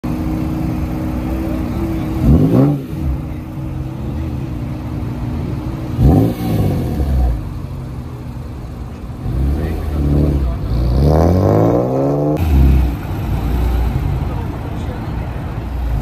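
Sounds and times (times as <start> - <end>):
car engine idling and revving: 0.0 - 16.0.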